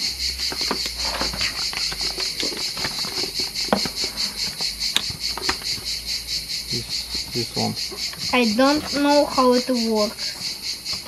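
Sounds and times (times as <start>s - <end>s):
insects chirping: 0.0s - 11.0s
plastic and cardboard handling clicks: 0.4s - 5.9s.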